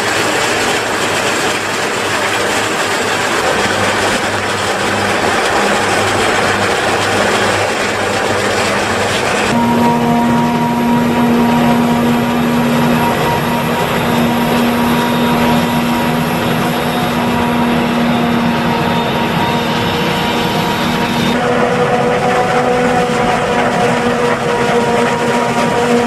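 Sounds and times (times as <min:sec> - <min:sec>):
forage harvester drone: 0:00.0 - 0:26.0
machine whine: 0:00.0 - 0:26.0.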